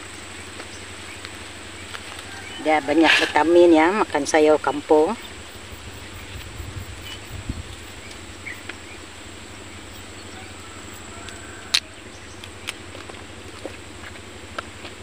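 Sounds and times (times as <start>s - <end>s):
steady low rumble: 4.0s - 15.0s.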